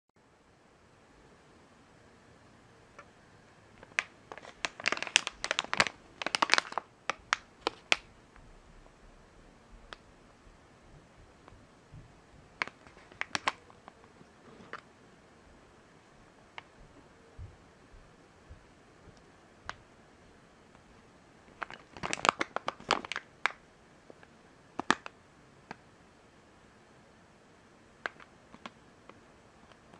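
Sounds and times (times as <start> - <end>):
plastic packet crinkling: 3.8 - 8.1, 12.6 - 14.8, 21.5 - 23.6, 24.8 - 25.1
soft low bump: 10.5 - 12.6, 16.8 - 19.2.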